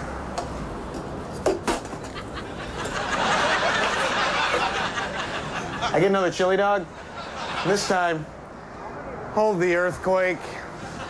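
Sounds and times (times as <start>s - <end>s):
audience laughter: 2.0s - 6.2s, 6.8s - 8.3s, 10.6s - 11.0s.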